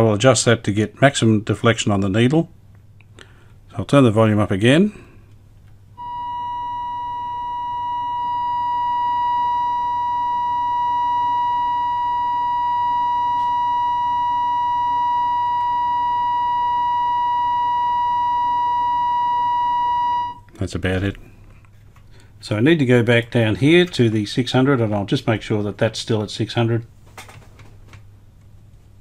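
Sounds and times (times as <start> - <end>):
steady test tone from radio: 6.0 - 20.5.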